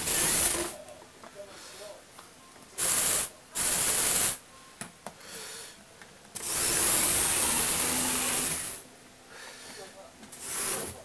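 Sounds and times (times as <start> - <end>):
toy electric motor whirring: 0.0 - 0.8, 2.8 - 4.4, 6.4 - 8.8, 10.4 - 11.0.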